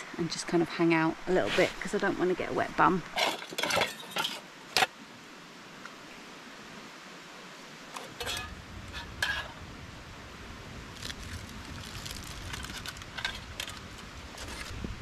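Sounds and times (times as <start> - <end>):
metal pan clinking: 3.2 - 4.4, 8.0 - 9.5
foil crinkling: 10.9 - 14.9.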